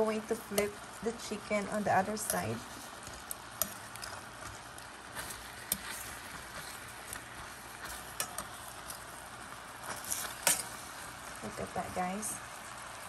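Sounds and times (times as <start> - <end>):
chicken sizzling in hot oil: 0.0 - 13.0
metal tongs clicking on pan: 1.7 - 2.6, 3.2 - 6.1, 7.8 - 9.1, 9.9 - 10.8.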